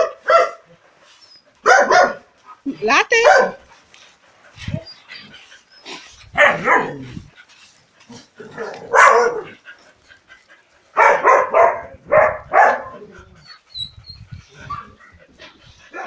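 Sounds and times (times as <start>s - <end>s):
dog barking: 0.0s - 0.6s, 1.6s - 2.3s, 3.2s - 3.6s, 6.4s - 7.0s, 8.6s - 9.6s, 11.0s - 13.0s.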